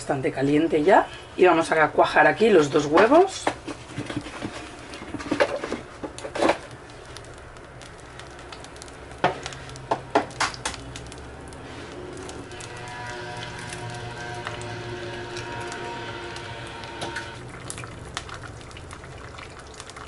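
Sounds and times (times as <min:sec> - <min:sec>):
low steady hum: 0:04.4 - 0:20.0
oil sizzling in a frying pan: 0:05.9 - 0:20.0.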